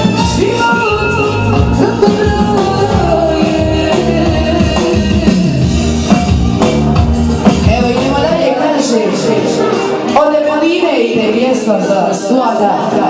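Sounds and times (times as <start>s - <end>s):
loud dance music with vocals: 0.0s - 13.0s.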